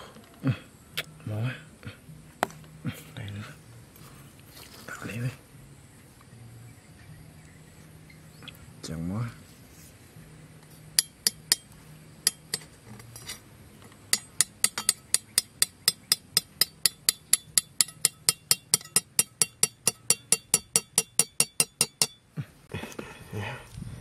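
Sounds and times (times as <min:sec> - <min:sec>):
metal trap tapped clinking: 0:15.9 - 0:22.2.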